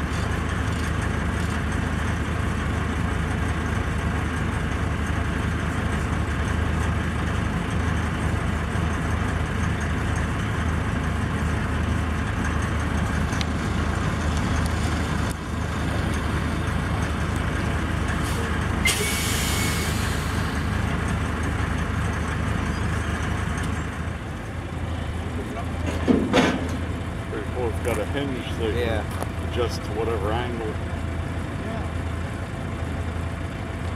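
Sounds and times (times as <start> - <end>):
diesel truck engine idling: 0.0 - 33.9
air brakes hissing: 18.1 - 20.9.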